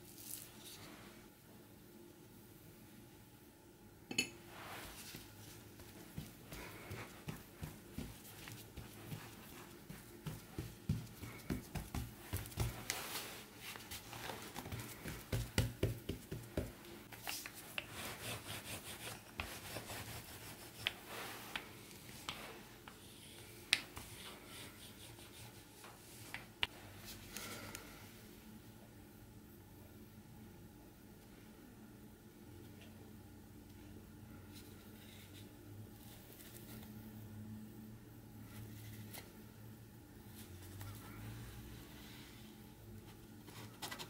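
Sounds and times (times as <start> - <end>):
hands kneading dough: 4.5 - 28.0.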